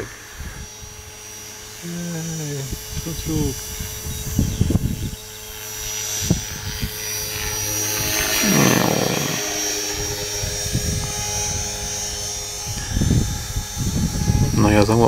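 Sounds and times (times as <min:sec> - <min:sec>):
rc helicopter whine: 0:00.0 - 0:15.0.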